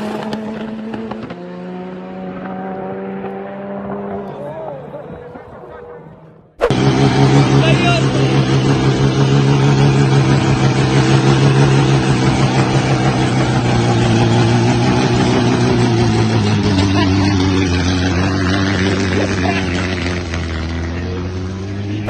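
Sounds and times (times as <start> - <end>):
car engine at high revs: 0.0 - 22.0.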